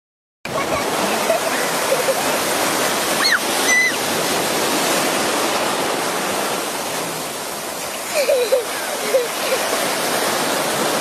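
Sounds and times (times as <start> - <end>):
ocean surf rushing: 0.5 - 11.0.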